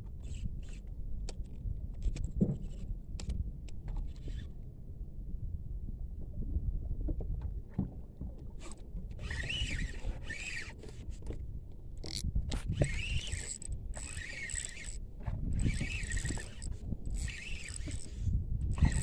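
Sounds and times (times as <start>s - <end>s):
wind rumbling on microphone: 0.0s - 19.0s
fishing reel cranking: 9.2s - 10.8s, 12.0s - 15.0s, 15.6s - 19.0s.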